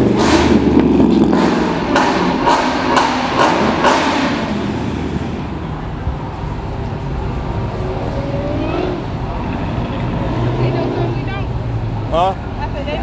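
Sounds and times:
engine revving: 0:00.0 - 0:05.6, 0:07.6 - 0:11.5
car exhaust bangs: 0:00.0 - 0:11.3
low engine rumble: 0:00.0 - 0:13.0.

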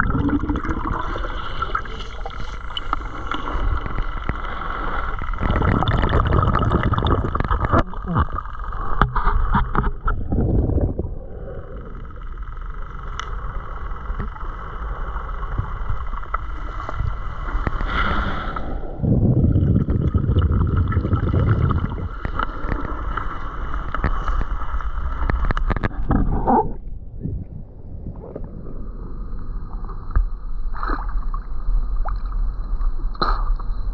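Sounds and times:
steady high whine: 0:00.0 - 0:33.9
underwater water rushing and sloshing: 0:00.0 - 0:33.9
small clicks: 0:12.1 - 0:14.5.

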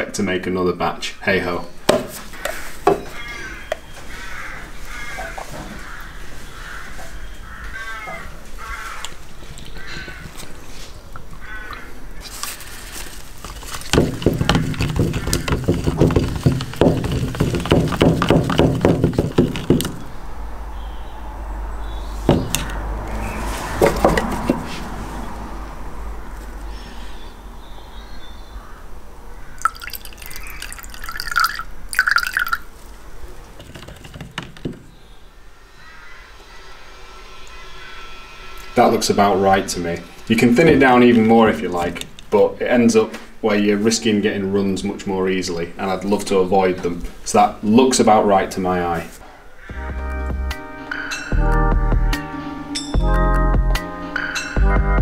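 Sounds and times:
metal rod stirring: 0:13.4 - 0:20.0, 0:29.6 - 0:32.6
liquid glugging: 0:29.6 - 0:32.9.

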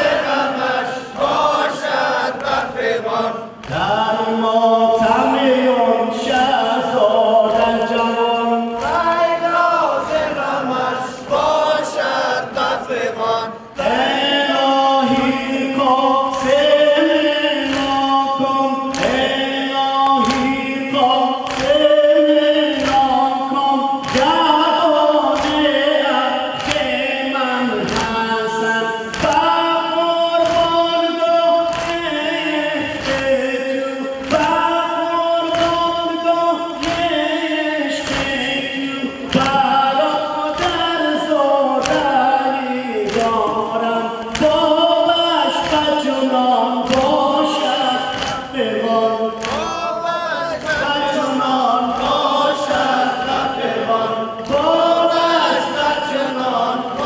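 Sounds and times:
men singing a lament: 0:00.0 - 0:57.0.

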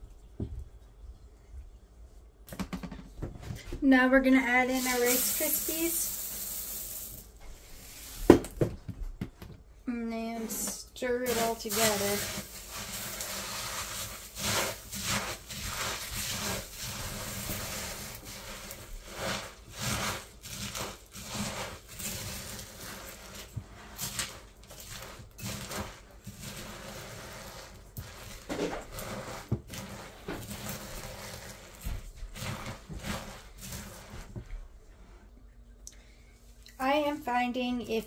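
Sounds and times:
spoon scraping sticky cereal in bowl: 0:04.3 - 0:08.2, 0:10.4 - 0:35.1.

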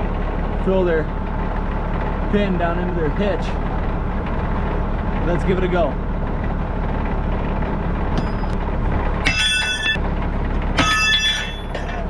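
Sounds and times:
tractor engine running: 0:00.0 - 0:12.0
metal pin clanking on hitch: 0:09.2 - 0:10.0, 0:10.7 - 0:12.0.

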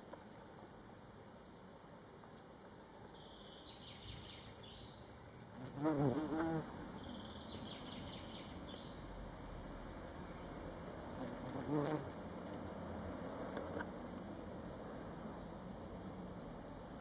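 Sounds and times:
bumblebee buzzing: 0:05.4 - 0:06.8, 0:11.1 - 0:12.2.

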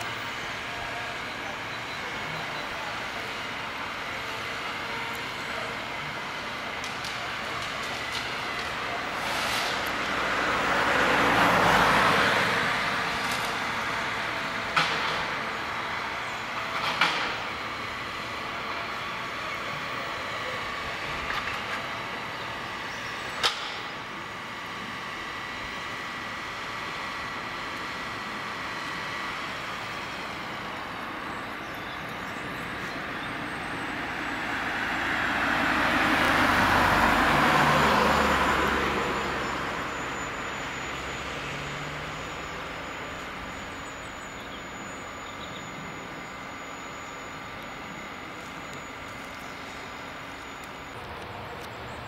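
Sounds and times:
harvester engine humming: 0:00.0 - 0:52.0.

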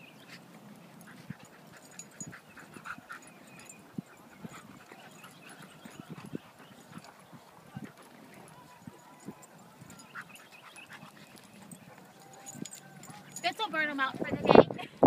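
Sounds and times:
dogs whining and yipping: 0:00.0 - 0:07.6, 0:08.5 - 0:13.6.

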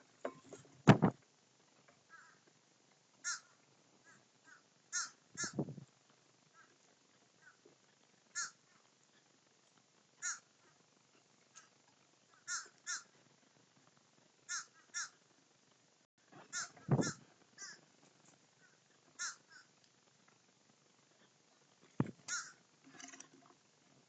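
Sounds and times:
low muffled thump: 0:00.9 - 0:01.2
crows cawing: 0:02.1 - 0:02.4, 0:03.2 - 0:05.6, 0:06.6 - 0:06.8, 0:07.4 - 0:07.6, 0:08.3 - 0:08.8, 0:10.2 - 0:10.8, 0:12.3 - 0:13.2, 0:14.5 - 0:15.2, 0:16.4 - 0:17.8, 0:18.6 - 0:19.7, 0:22.2 - 0:22.6.

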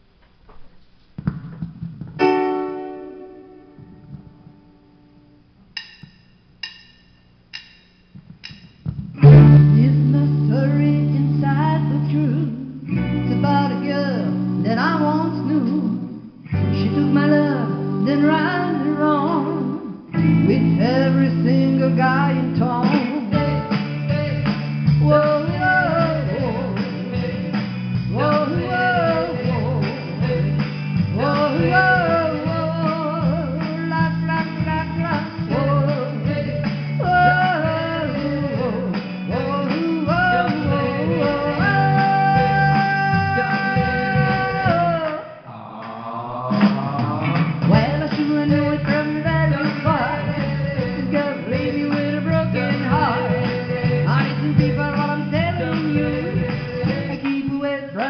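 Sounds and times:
rock and roll backing track: 0:00.5 - 0:05.0, 0:05.7 - 0:45.2, 0:46.6 - 0:58.0
woman singing karaoke: 0:09.2 - 0:24.4, 0:25.0 - 0:30.5, 0:31.1 - 0:45.2, 0:46.6 - 0:58.0.

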